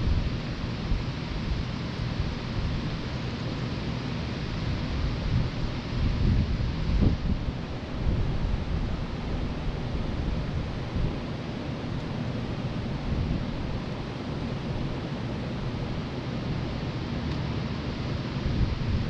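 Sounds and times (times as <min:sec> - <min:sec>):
wind buffeting microphone: 0:04.8 - 0:11.3, 0:18.4 - 0:19.0.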